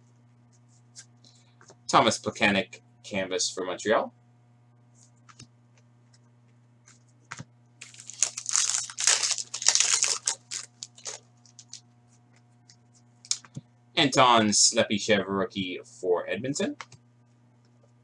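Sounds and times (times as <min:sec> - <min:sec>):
foil wrapper crinkling and tearing: 0:07.8 - 0:11.8.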